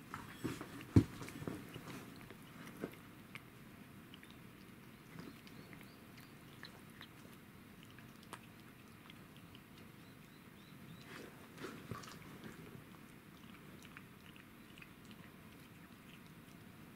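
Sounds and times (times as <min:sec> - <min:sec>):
cat gnawing on bone: 0:00.1 - 0:16.9.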